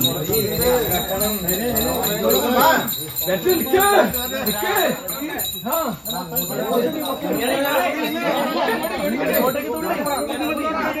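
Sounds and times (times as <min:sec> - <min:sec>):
small bells jingling: 0:00.0 - 0:11.0.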